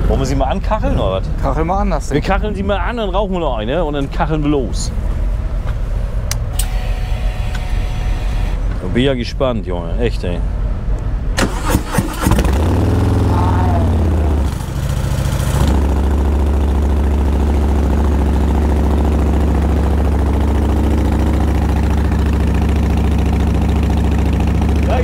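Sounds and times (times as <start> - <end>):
starter motor clattering: 11.4 - 13.2, 18.0 - 25.0
motorcycle engine idling: 12.5 - 25.0.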